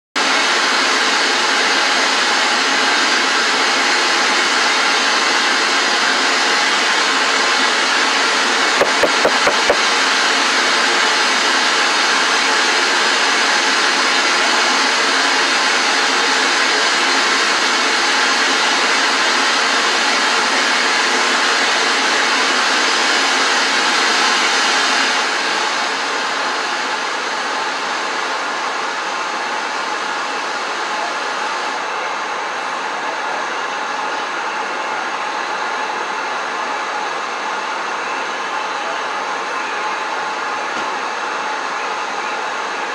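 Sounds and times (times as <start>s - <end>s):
knocking on a door: 8.8s - 9.8s.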